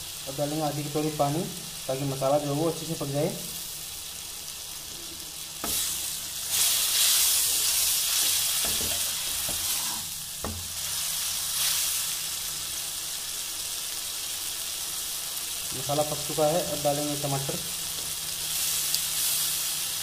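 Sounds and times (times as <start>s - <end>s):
onions sizzling in hot oil: 0.0s - 20.0s.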